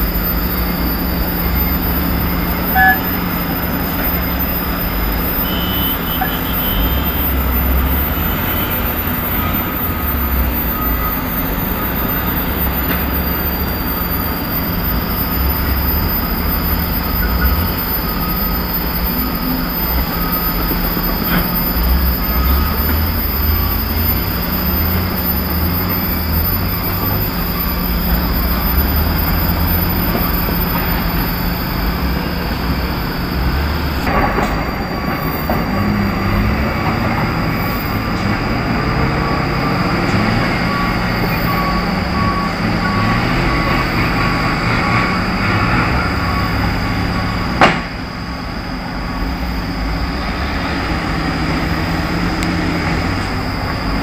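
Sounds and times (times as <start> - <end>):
diesel engines rumbling: 0.0 - 54.0
sharp bang: 47.6 - 48.0.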